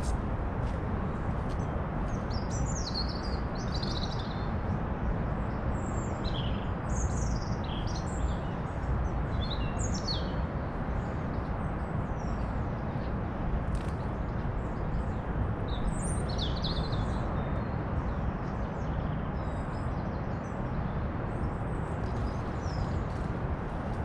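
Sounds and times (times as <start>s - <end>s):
songbirds chirping: 13.8s - 24.0s.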